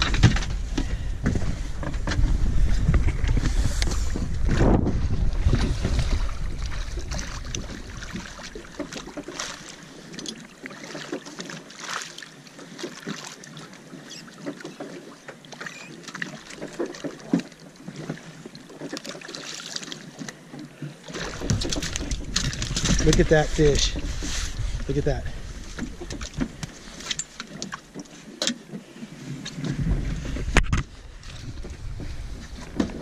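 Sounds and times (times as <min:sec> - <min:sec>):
wind on microphone: 0:00.0 - 0:08.7, 0:21.2 - 0:26.9, 0:29.4 - 0:33.0
water splashing at boat side: 0:00.0 - 0:33.0.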